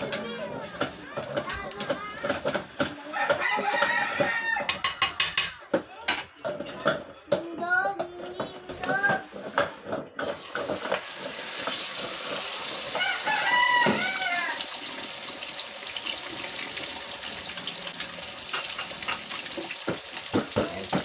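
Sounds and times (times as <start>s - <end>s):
eggs sizzling in a pan: 0.0s - 21.0s
rooster crowing: 3.0s - 5.2s, 12.9s - 14.8s.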